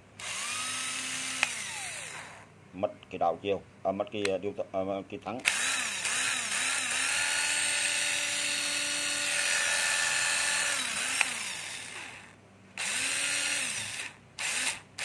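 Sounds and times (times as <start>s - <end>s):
cordless drill motor: 0.2s - 2.5s, 5.4s - 15.0s.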